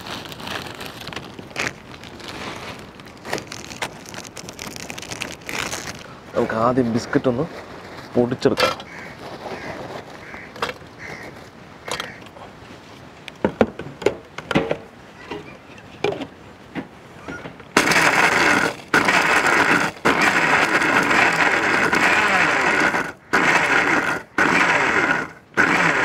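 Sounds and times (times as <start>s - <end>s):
mixer grinder running: 17.8s - 26.0s.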